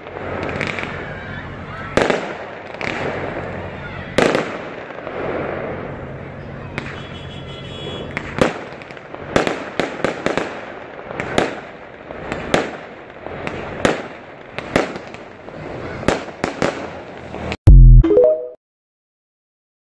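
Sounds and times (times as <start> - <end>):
fireworks bangs and cracks: 0.0 - 7.1, 8.0 - 17.6
fireworks crackle: 0.0 - 17.6.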